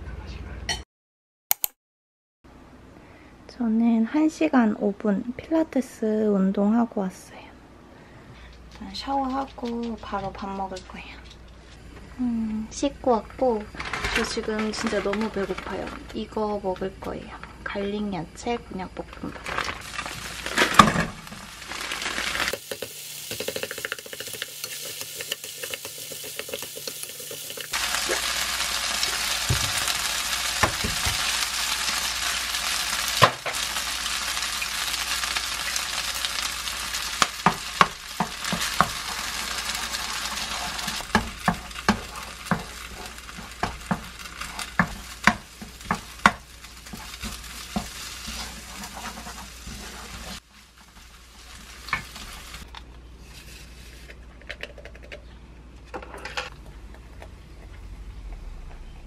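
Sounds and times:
fried rice sizzling in wok: 19.4s - 52.7s.

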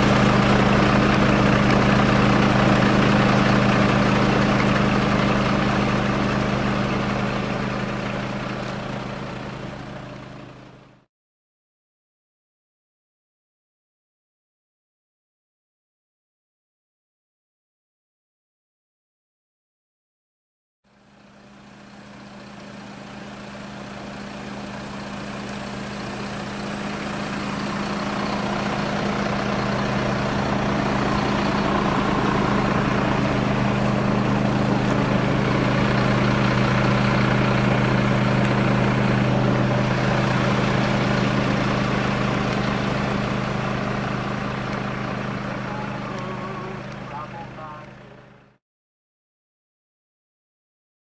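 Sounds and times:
vehicle engine idling: 0.0s - 11.1s, 20.9s - 48.6s.

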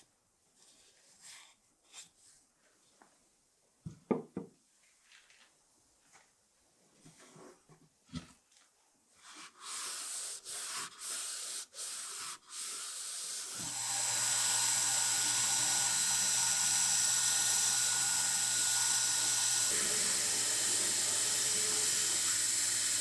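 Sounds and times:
belt grinder running: 13.5s - 23.0s.

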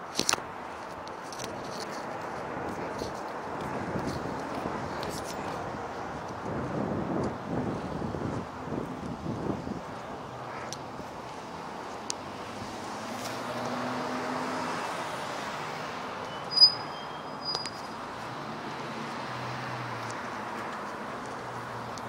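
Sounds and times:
city road traffic: 0.0s - 22.0s
vehicle passing: 10.3s - 22.0s
high-pitched chirps: 16.3s - 17.8s.

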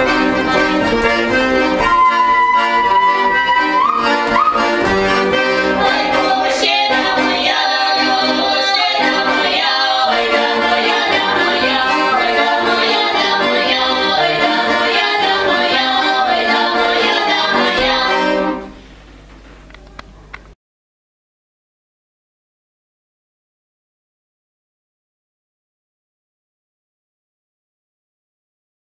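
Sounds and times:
women singing in harmony: 5.6s - 18.7s.

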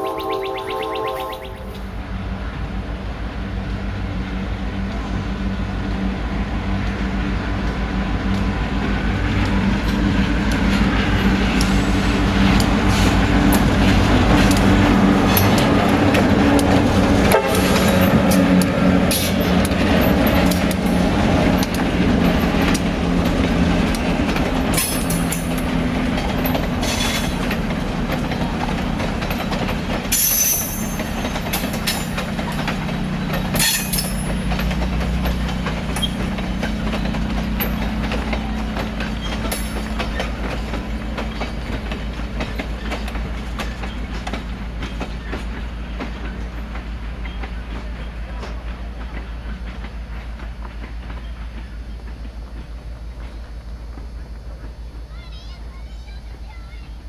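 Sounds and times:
high-pitched wheel squeals: 0.0s - 1.8s
train wheels clattering on track: 0.0s - 57.0s.

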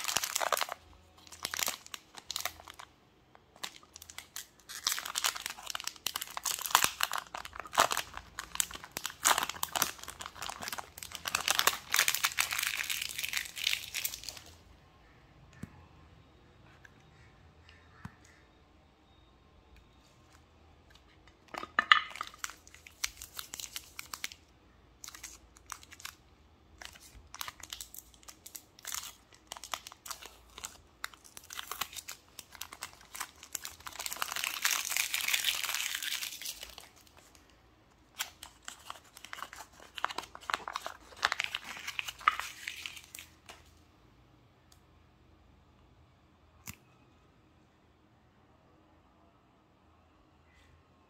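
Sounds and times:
wrappers crinkling and tearing: 0.0s - 2.9s, 3.5s - 14.6s, 22.1s - 24.4s, 25.0s - 26.2s, 26.8s - 37.5s, 38.1s - 43.6s.

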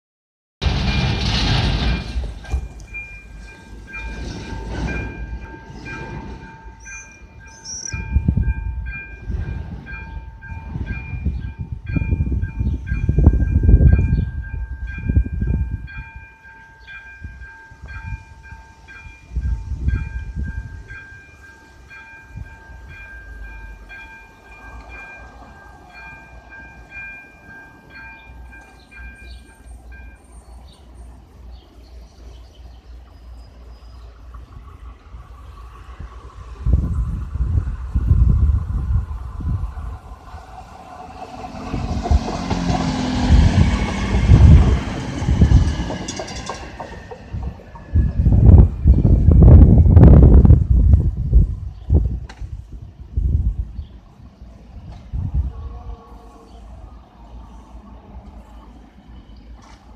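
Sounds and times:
road traffic rumble: 0.6s - 59.9s
level crossing warning bell: 1.9s - 30.8s.

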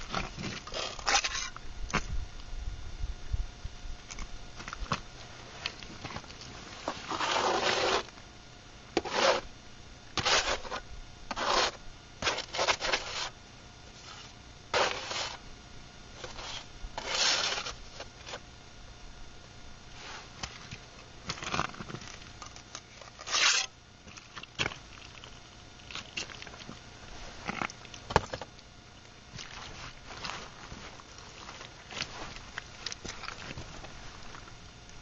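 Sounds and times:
scraping and rubbing noises: 0.0s - 2.1s, 4.7s - 8.1s, 9.0s - 9.5s, 10.2s - 15.4s, 16.2s - 18.4s, 19.9s - 25.4s, 26.0s - 28.5s, 29.4s - 34.5s.

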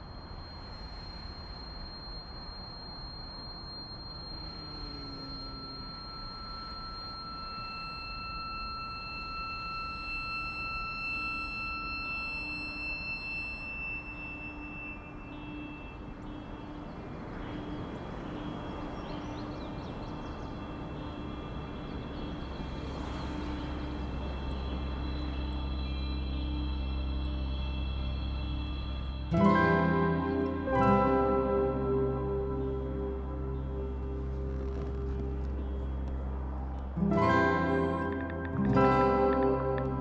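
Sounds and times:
ambient music with high held tones: 0.0s - 40.0s
car road noise: 15.1s - 29.4s, 32.7s - 40.0s.

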